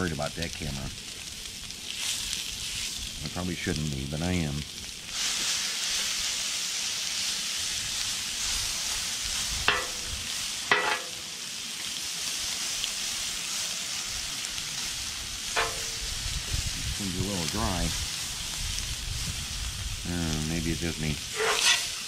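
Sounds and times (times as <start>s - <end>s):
food sizzling on a griddle: 0.0s - 22.0s
metal spatula scraping griddle: 10.7s - 11.2s, 15.5s - 16.0s, 21.2s - 22.0s.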